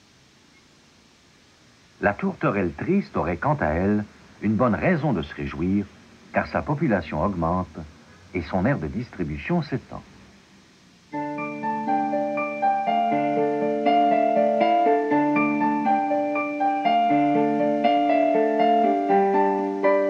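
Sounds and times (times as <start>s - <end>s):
keyboard playing held chords: 11.1s - 20.0s.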